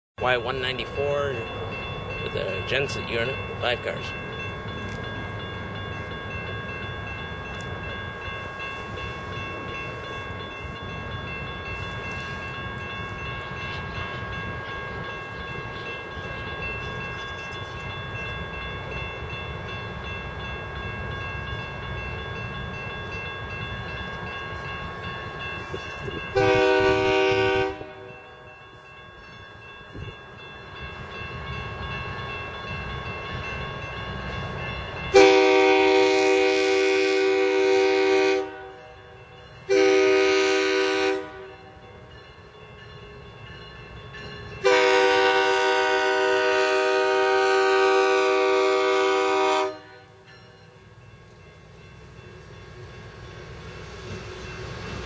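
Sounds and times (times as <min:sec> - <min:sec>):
crossing signal bell ringing: 0:00.2 - 0:55.0
locomotive horn blast: 0:26.4 - 0:28.1, 0:35.1 - 0:38.9, 0:39.7 - 0:41.6, 0:44.6 - 0:50.1.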